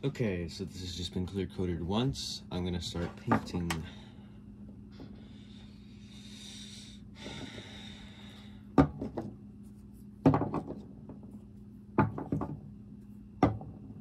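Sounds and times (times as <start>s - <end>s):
steady low hum: 0.0s - 14.0s
plastic bottles knocking on wood: 10.2s - 11.2s, 12.0s - 12.6s.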